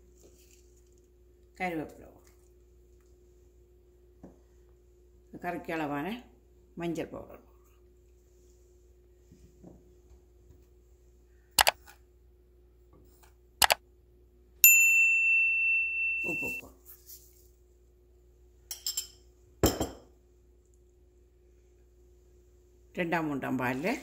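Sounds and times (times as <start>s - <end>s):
sharp mouse clicks: 11.6s - 11.8s
bell ding: 14.6s - 16.6s.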